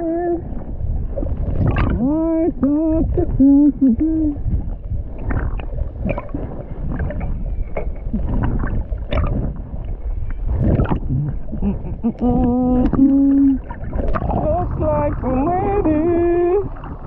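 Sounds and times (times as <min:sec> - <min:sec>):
muffled humming voice: 0:00.0 - 0:00.5, 0:02.0 - 0:04.4, 0:11.1 - 0:13.7, 0:14.3 - 0:16.8
muffled water sloshing underwater: 0:00.0 - 0:17.0.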